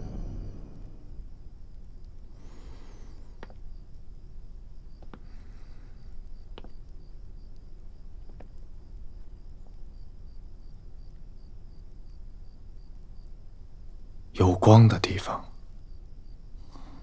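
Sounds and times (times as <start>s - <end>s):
crickets chirping: 0.0s - 17.0s
low background hum: 0.0s - 17.0s
faint clicks: 1.7s - 4.1s.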